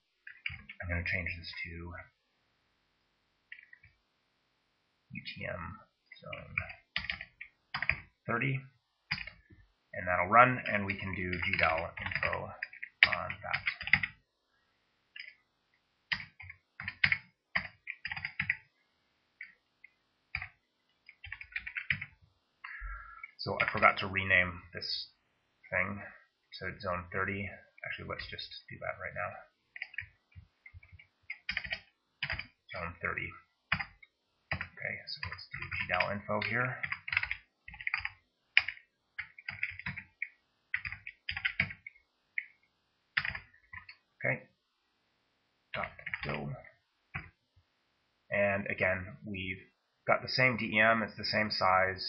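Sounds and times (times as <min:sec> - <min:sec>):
typing on computer keyboard: 0:00.2 - 0:00.8, 0:03.5 - 0:04.0, 0:06.3 - 0:08.1, 0:09.1 - 0:09.4, 0:10.8 - 0:14.2, 0:15.2 - 0:15.4, 0:16.1 - 0:18.6, 0:20.3 - 0:22.2, 0:29.7 - 0:32.6, 0:33.7 - 0:42.6, 0:43.2 - 0:44.0, 0:45.8 - 0:46.4, 0:47.1 - 0:47.4.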